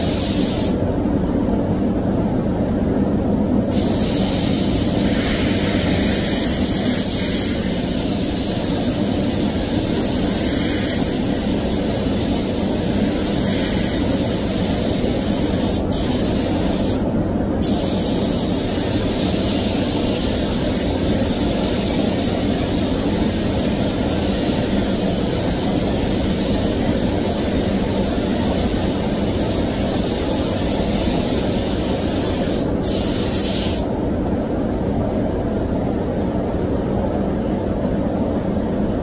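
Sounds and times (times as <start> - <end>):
spray gun air hiss: 0.0 - 0.8, 3.7 - 33.9.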